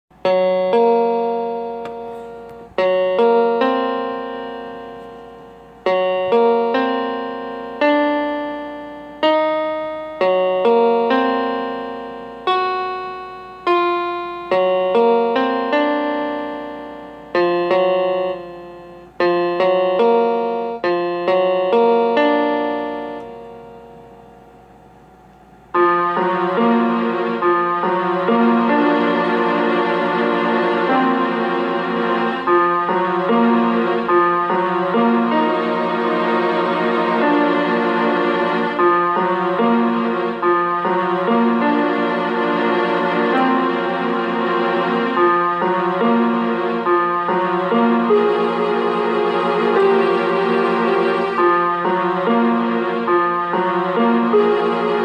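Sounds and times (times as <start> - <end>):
slow piano-like chords: 0.1 - 55.0.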